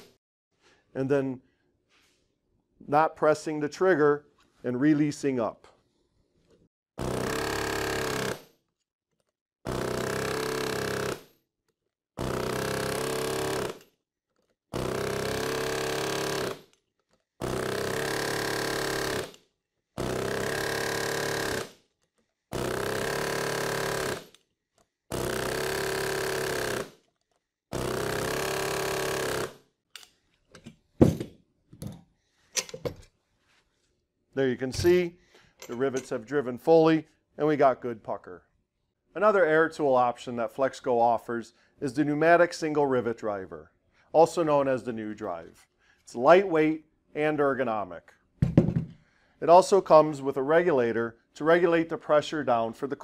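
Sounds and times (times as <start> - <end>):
air-powered rivet driver bursts: 7.0 - 8.4, 9.7 - 11.3, 12.2 - 13.9, 14.8 - 16.8, 17.4 - 21.8, 22.5 - 24.4, 25.1 - 27.1, 27.7 - 29.6.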